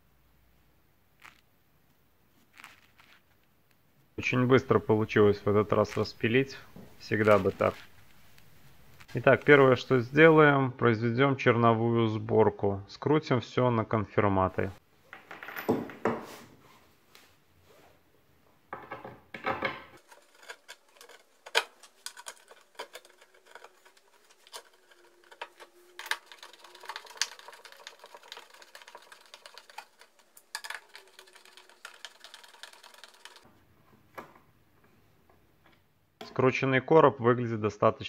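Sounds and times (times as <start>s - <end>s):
rapid clicks: 20.0s - 33.4s.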